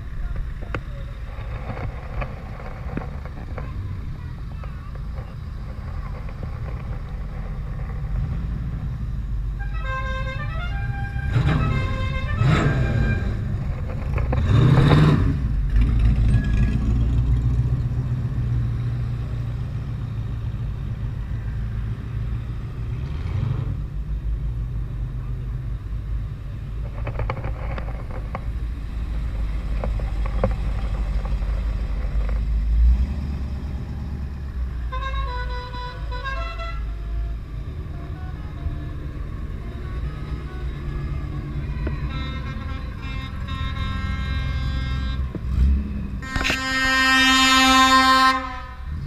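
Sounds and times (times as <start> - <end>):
car engines rumbling past: 0.0 - 49.0
car horn short notes: 42.0 - 45.3, 46.2 - 48.8.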